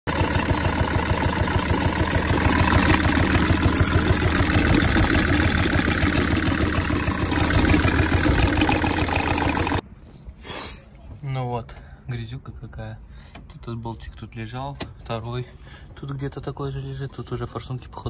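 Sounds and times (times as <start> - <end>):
diesel engine idling with knock: 0.1 - 9.8.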